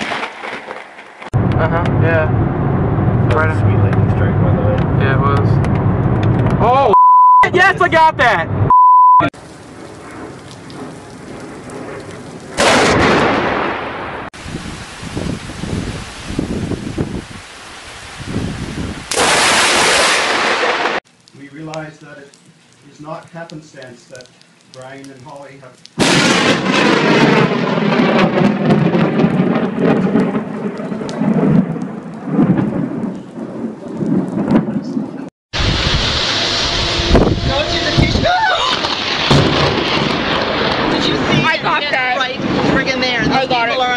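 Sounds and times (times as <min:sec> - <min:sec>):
wind: 0:00.0 - 0:43.9
loud thunderclap rumbling: 0:01.3 - 0:06.6, 0:09.4 - 0:17.4, 0:18.1 - 0:21.0, 0:26.0 - 0:43.9
rain hissing: 0:09.3 - 0:35.0, 0:35.6 - 0:43.9.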